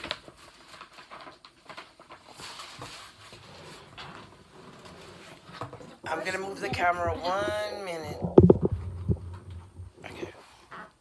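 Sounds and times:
rustles of handling: 0.0 - 6.0.

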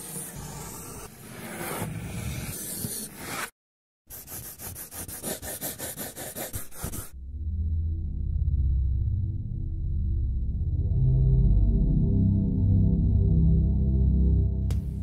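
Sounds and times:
pencil scratching on paper: 0.0 - 3.5, 4.1 - 7.1
deep gong-like tone: 7.2 - 15.0.

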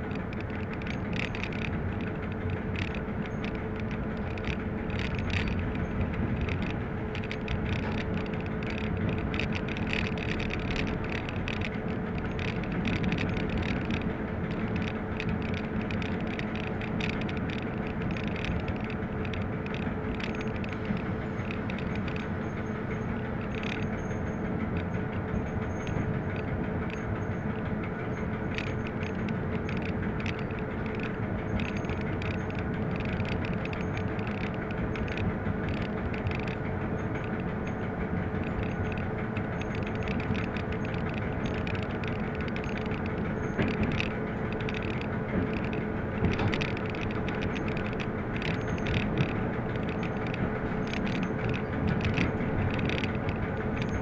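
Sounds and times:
locomotive engine drone: 0.0 - 54.0
rattles and knocks of running gear: 0.0 - 54.0.

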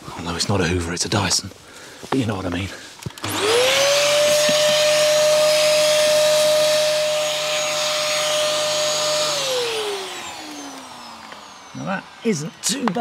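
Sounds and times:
vacuum cleaner running: 3.1 - 13.0.

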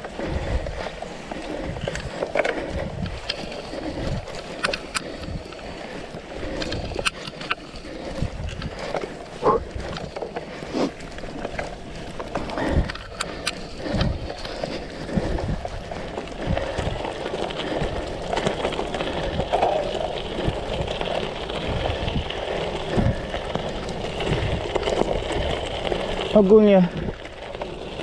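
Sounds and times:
bike rattling and knocking: 0.0 - 28.0
tyres churning over sand: 0.0 - 28.0.

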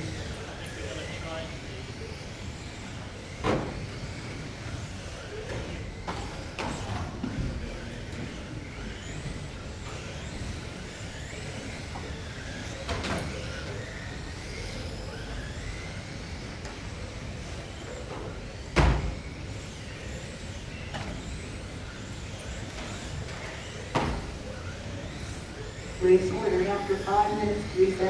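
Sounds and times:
radio-control car motors whining: 0.0 - 28.0.

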